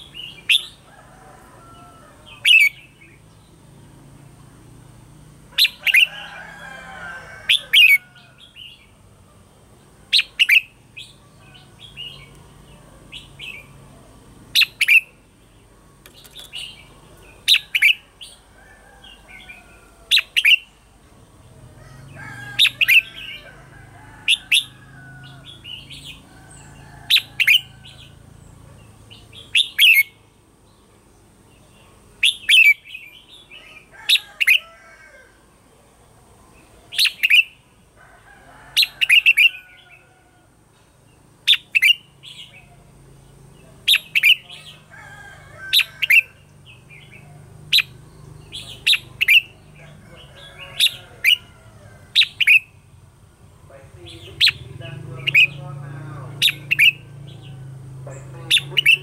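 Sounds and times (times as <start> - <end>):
soft bird chirps and warbles: 7.5 - 34.7, 35.3 - 53.0, 53.7 - 59.0
loud sharp bird notes: 54.0 - 57.6.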